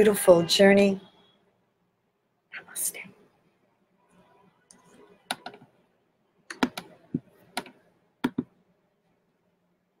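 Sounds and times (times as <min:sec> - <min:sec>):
keyboard clicks and taps: 0:05.3 - 0:05.7, 0:06.5 - 0:08.5.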